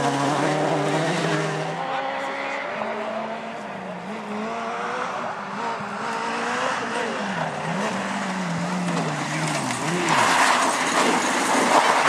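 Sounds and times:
rally car engine revving: 0.0 - 12.0
tyres scrabbling on dirt: 7.7 - 12.0.

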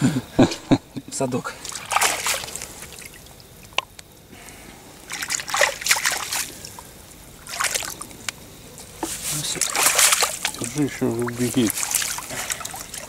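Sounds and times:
fish thrashing in water: 1.6 - 3.8, 5.0 - 8.2, 9.0 - 13.0.

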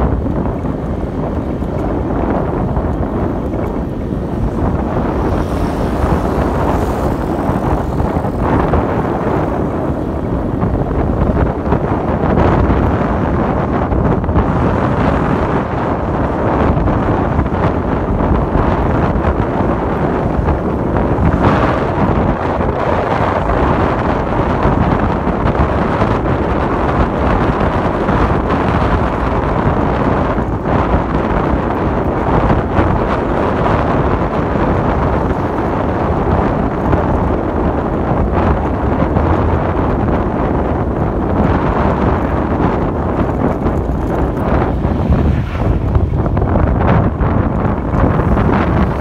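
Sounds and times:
vehicle engine: 0.0 - 13.2, 41.9 - 49.0
road noise: 0.0 - 49.0
wind on microphone: 0.0 - 49.0.

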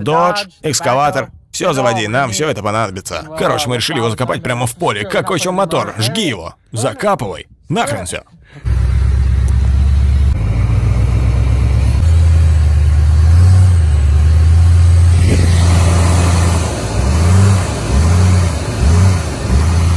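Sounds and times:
vehicle engine running under load: 8.6 - 19.9.

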